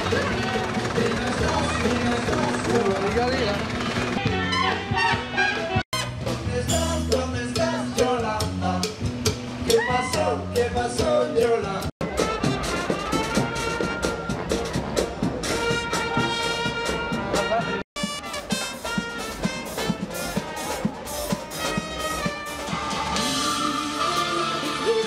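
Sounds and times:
brass band music: 0.0 - 25.0.

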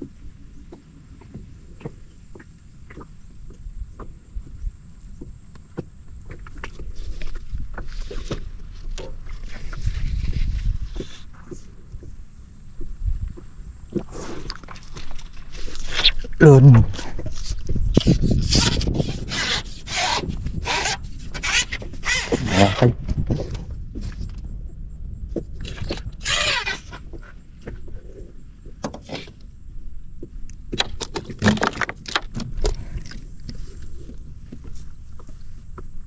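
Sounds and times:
weeds scraping against boat hull: 6.7 - 11.8, 13.9 - 24.2, 25.6 - 28.3.

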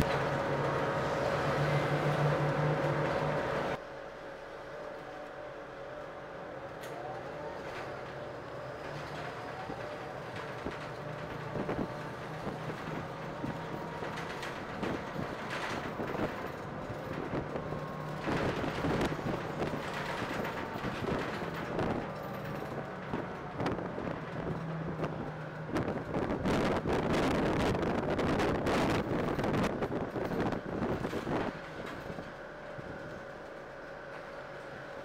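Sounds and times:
car engine hum: 0.0 - 3.8
road noise: 0.0 - 35.0
wind noise on microphone: 9.5 - 33.2.

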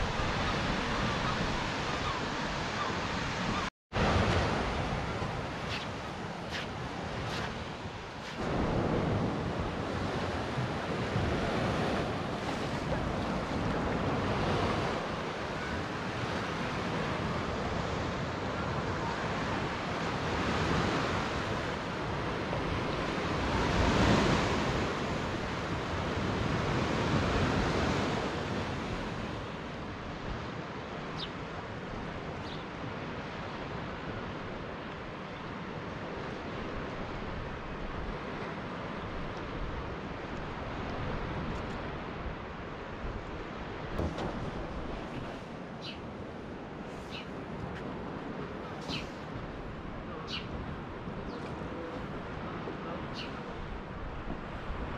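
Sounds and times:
waves washing onto sandy beach: 0.0 - 54.9
wind buffeting microphone: 0.0 - 54.9.

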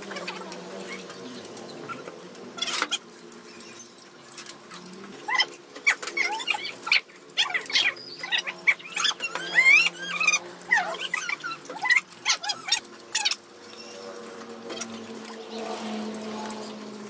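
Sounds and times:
high sliding animal calls: 5.2 - 13.5.

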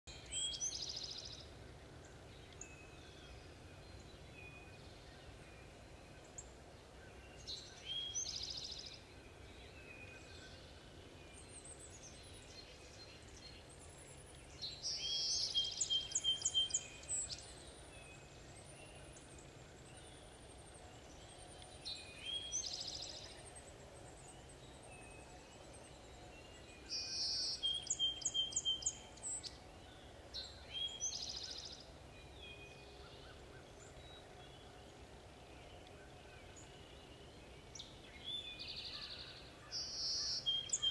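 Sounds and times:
songbirds singing: 0.1 - 40.9
thin whistled bird notes: 11.4 - 18.3, 24.2 - 34.9, 35.6 - 40.9.

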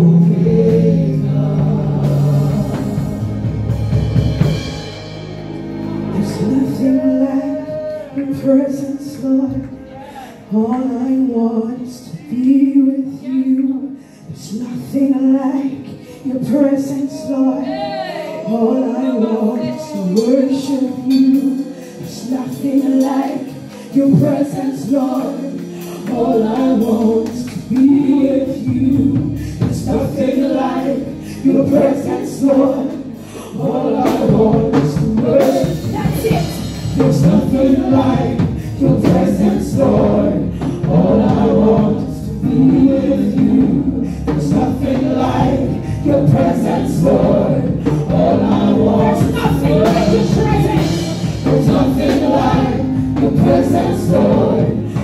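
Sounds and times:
instrumental accompaniment: 0.0 - 11.6, 17.5 - 55.0
woman singing into a microphone: 6.3 - 33.1, 47.8 - 51.5
voices singing along: 14.4 - 55.0.

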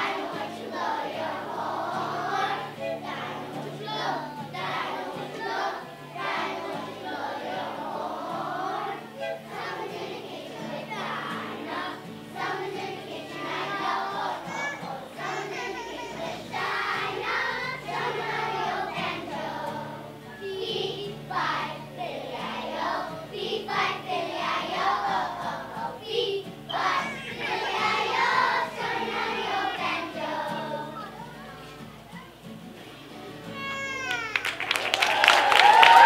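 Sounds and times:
children's choir singing: 0.0 - 33.5, 34.8 - 36.0.

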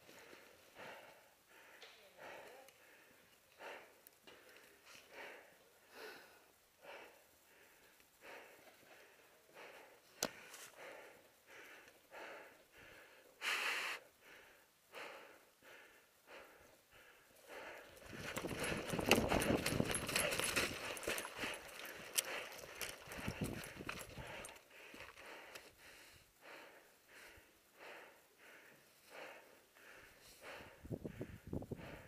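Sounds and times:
heavy breathing: 0.0 - 32.0
gear rustling: 17.8 - 25.2
running footsteps on dry leaves: 18.0 - 25.2.

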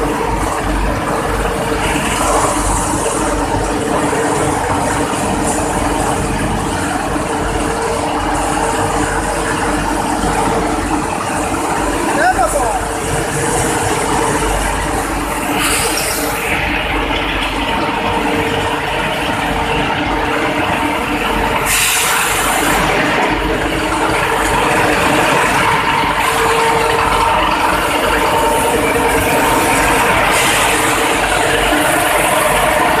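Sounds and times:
loud machine din: 0.0 - 33.0
hiss of water spraying: 21.7 - 22.8.

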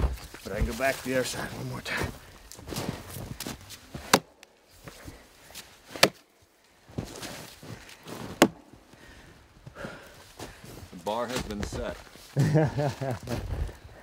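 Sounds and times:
axe chopping into log: 4.0 - 4.4, 5.9 - 6.3, 8.2 - 8.7.

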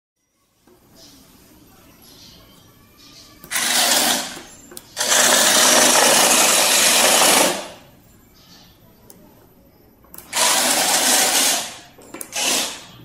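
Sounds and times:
toy car electric motors: 3.4 - 7.8, 10.2 - 13.0.

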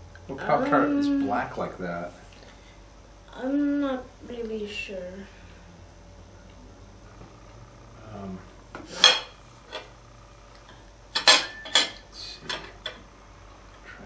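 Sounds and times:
cutlery clinking on a plate: 11.2 - 13.0.

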